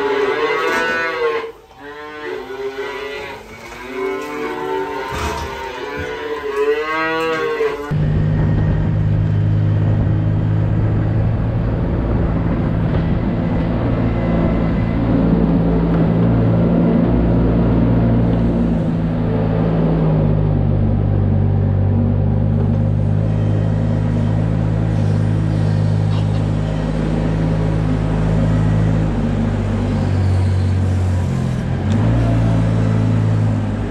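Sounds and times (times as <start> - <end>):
loader engine humming: 7.7 - 33.9.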